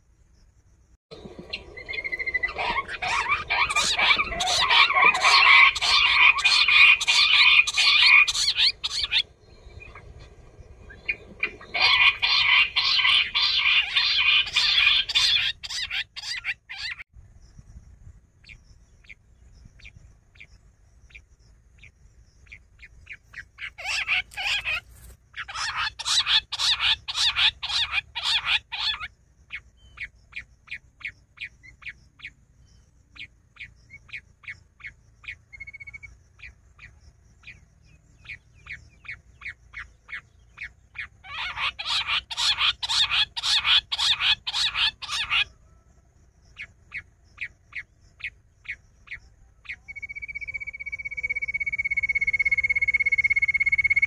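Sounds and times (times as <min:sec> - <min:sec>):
quail chattering calls: 0:01.4 - 0:10.0, 0:10.9 - 0:17.0, 0:23.3 - 0:32.3, 0:38.2 - 0:45.6.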